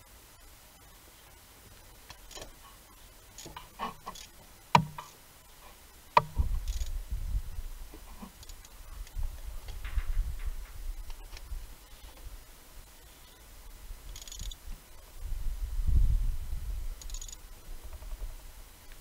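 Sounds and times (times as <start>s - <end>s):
sharp metallic knocks: 4.7s - 5.1s, 6.2s - 6.4s
ratchet wrench clicking: 6.6s - 7.0s, 14.1s - 14.6s, 17.0s - 17.4s.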